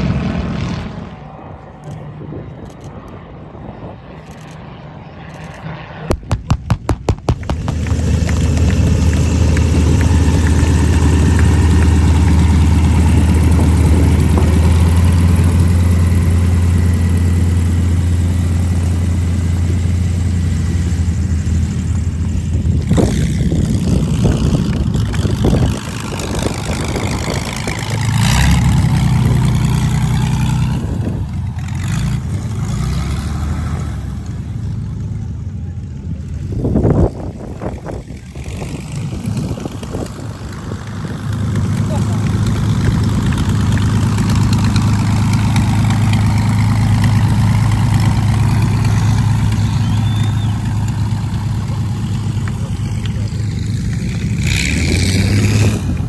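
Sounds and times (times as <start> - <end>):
aircraft engine idling: 1.1 - 32.7, 33.4 - 56.0
aircraft engine firing pops: 5.4 - 12.5.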